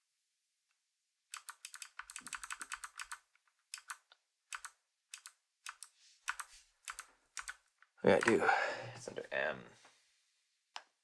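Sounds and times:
mechanical keyboard typing: 1.4s - 8.4s.

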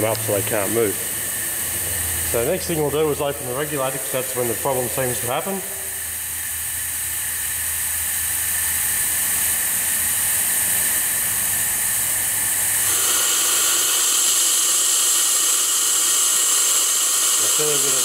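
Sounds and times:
compressed air hissing: 12.5s - 18.0s.

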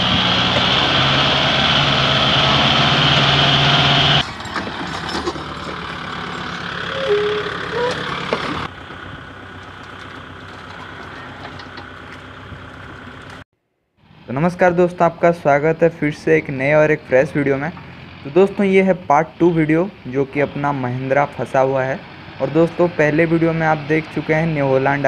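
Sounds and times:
tractor diesel engines running: 0.0s - 13.4s, 14.0s - 25.0s
brief tones: 6.9s - 8.7s.

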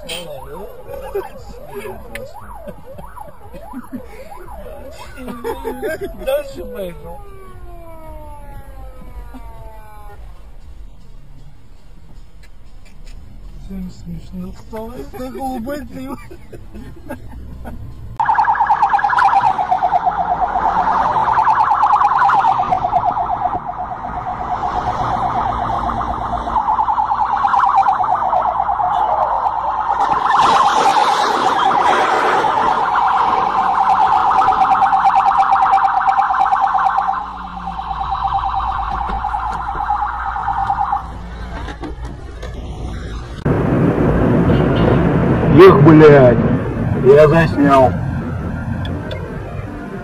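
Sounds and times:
police siren warbling: 0.0s - 10.4s, 18.2s - 41.6s.

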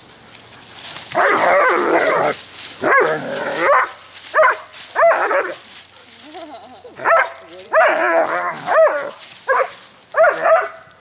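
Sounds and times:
dog growling: 1.1s - 3.7s, 6.2s - 9.2s
dog barking: 2.8s - 5.6s, 7.0s - 10.8s.

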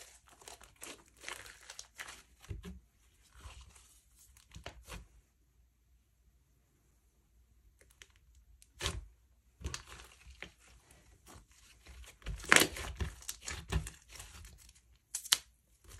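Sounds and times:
slime crackling and popping: 12.2s - 14.2s.

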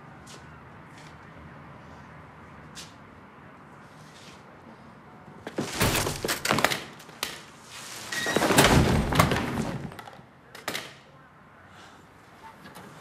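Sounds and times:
body thudding against metal shelving: 5.5s - 6.7s, 8.2s - 10.0s
goods rattling and crashing: 8.1s - 10.2s.

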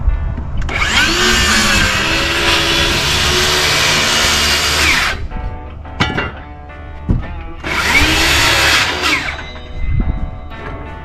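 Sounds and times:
circular saw cutting wood: 0.7s - 5.2s, 7.6s - 9.6s.

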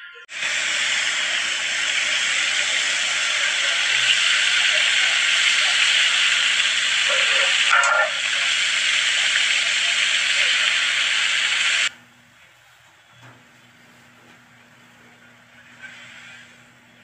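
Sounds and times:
food sizzling in a pan: 0.3s - 11.9s, 15.6s - 16.7s.

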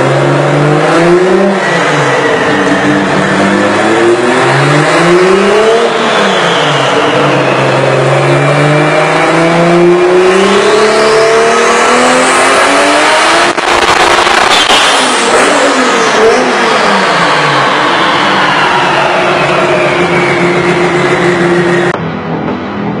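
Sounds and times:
car engine revving hard: 0.0s - 22.0s
high whine: 13.3s - 23.0s.

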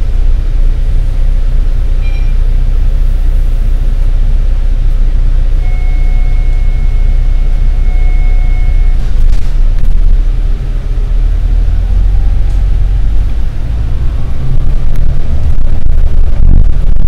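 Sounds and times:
bus engine idling: 0.0s - 17.0s
faint steady high tone: 2.0s - 2.6s, 5.6s - 9.1s.

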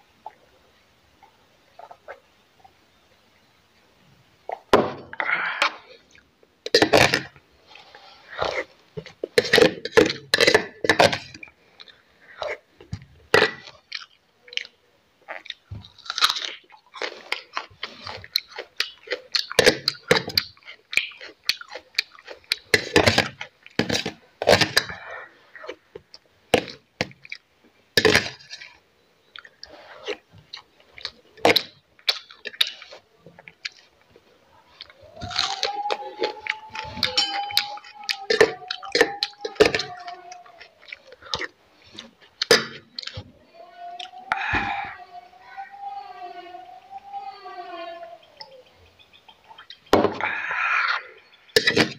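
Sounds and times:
person chewing and crunching food: 4.5s - 43.3s.

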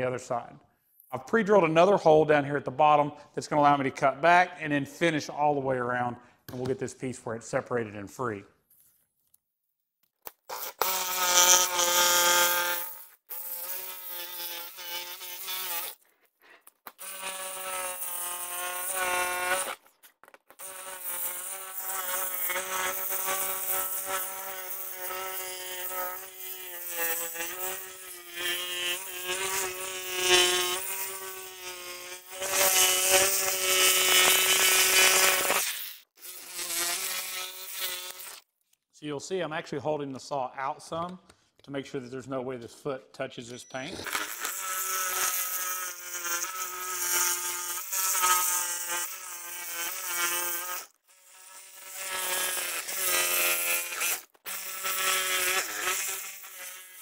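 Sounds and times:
reciprocating saw cutting: 20.6s - 38.5s, 43.5s - 57.0s.

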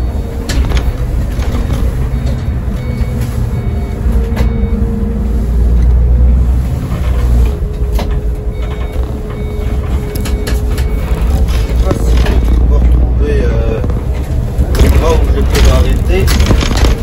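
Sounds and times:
bus diesel engine drone: 0.0s - 17.0s
gearbox whine: 0.0s - 17.0s
cab rattles: 6.9s - 17.0s.

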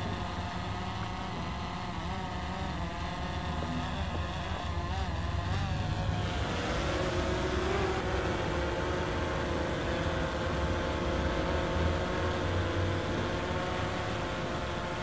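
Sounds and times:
drone propellers whirring: 0.0s - 15.0s.

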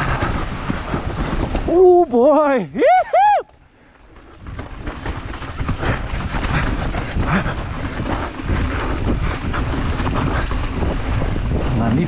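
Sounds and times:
bike rattling over rough trail: 0.0s - 12.0s
wind buffeting microphone: 0.0s - 12.0s.

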